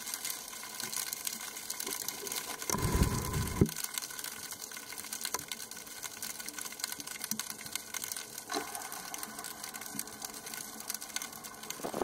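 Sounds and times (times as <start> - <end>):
faint steady hum: 2.5 - 3.8.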